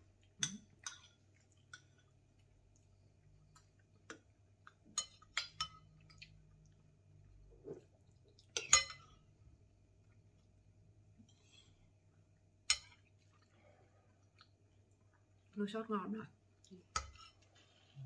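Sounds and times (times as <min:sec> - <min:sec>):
spoons clinking against bowls: 0:08.6 - 0:09.2.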